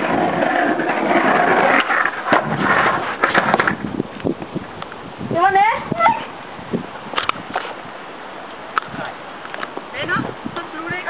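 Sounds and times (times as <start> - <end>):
skateboard clattering on ground: 0.0 - 3.9
skater falling on ground: 0.0 - 4.0
skateboard wheels rolling on concrete: 0.0 - 11.0.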